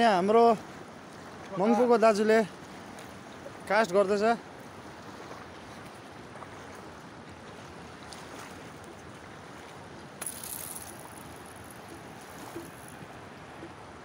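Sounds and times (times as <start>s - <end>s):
river water rushing: 0.0s - 14.0s
wind: 0.0s - 14.0s
fishing line swishing out: 10.2s - 13.2s.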